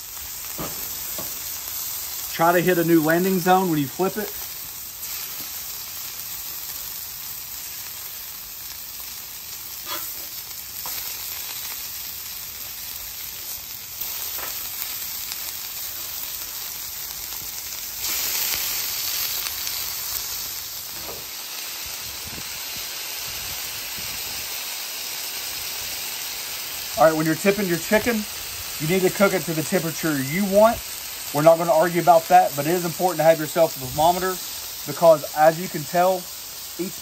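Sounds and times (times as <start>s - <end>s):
meat sizzling on a griddle: 0.0s - 37.0s
steel spatula scraping: 9.8s - 10.4s.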